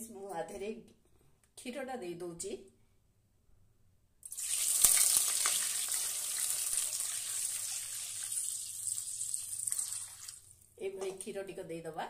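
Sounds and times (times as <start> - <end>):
milk sizzling in hot ghee: 4.2 - 10.6.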